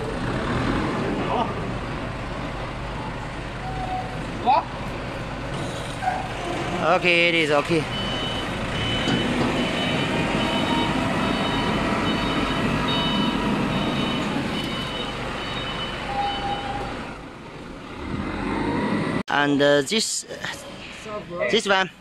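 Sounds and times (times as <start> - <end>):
reversing alarm beeping: 7.9 - 17.0.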